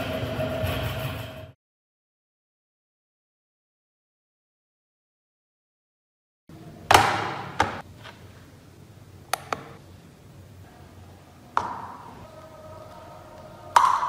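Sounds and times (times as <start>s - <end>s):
hard objects knocking: 13.7s - 14.0s.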